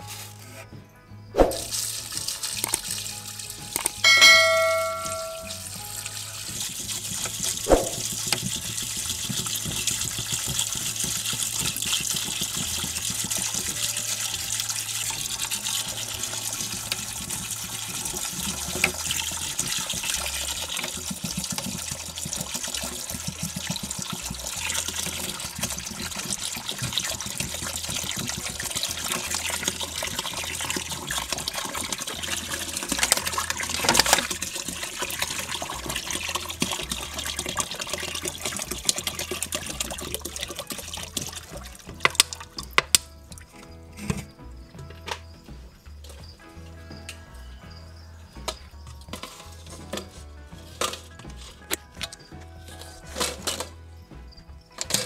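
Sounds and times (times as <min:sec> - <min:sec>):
water pouring onto gravel: 0:01.6 - 0:43.5.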